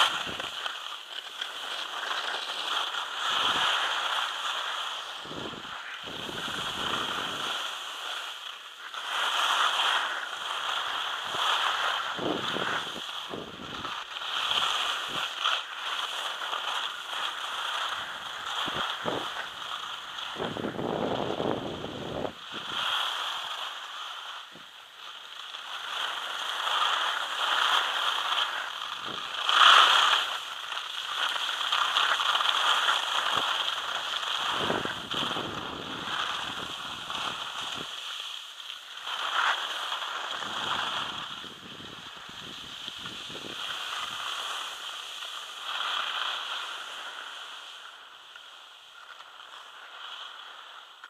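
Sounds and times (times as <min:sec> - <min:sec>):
skis scraping on snow: 0:00.0 - 0:51.0
wind buffeting microphone: 0:05.2 - 0:07.5, 0:12.2 - 0:13.9, 0:20.3 - 0:22.7, 0:34.4 - 0:37.9, 0:40.4 - 0:44.2.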